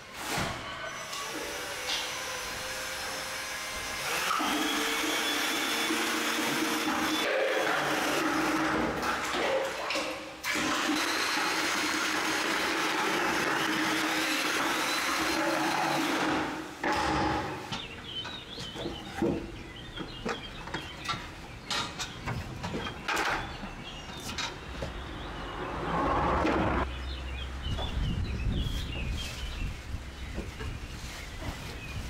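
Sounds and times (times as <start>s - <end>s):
drill mixing paint in bucket: 1.0s - 9.2s, 10.4s - 17.6s
birds chirping: 17.2s - 32.0s.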